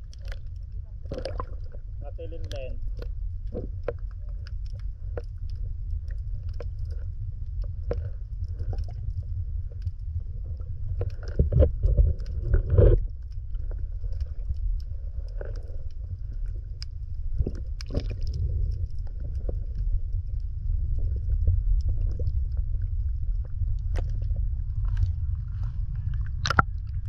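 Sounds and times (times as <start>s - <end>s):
muffled underwater rumble: 0.0s - 27.0s
underwater swells: 0.0s - 27.0s
underwater clicks and pops: 1.0s - 1.8s, 16.8s - 19.1s, 26.1s - 27.0s.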